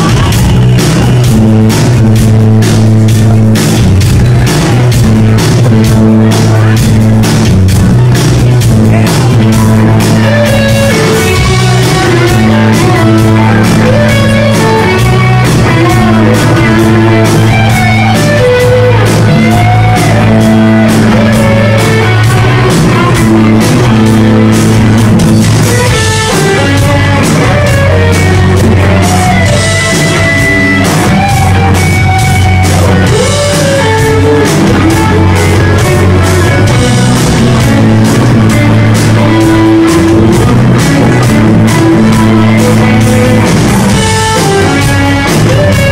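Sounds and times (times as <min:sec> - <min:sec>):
electric guitar lead line: 0:00.0 - 0:45.9
live rock band playing: 0:00.0 - 0:45.9.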